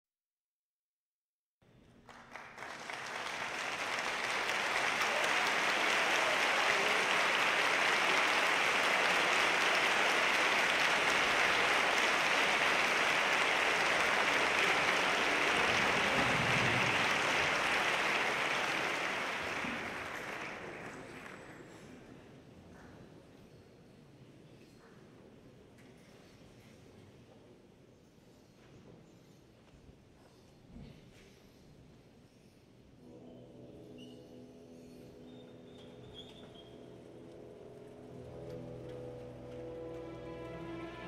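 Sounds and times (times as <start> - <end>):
audience applauding: 2.0 - 21.9, 35.7 - 41.0.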